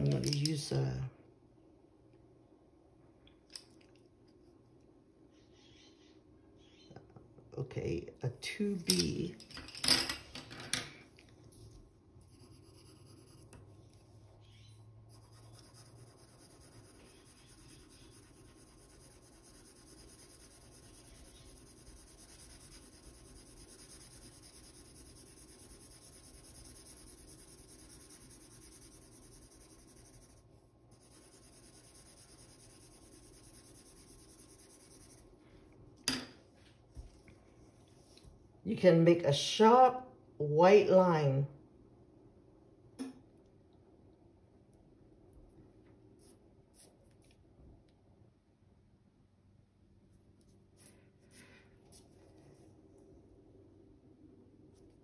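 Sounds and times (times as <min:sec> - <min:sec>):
pencil scratching on paper: 0:11.5 - 0:35.3.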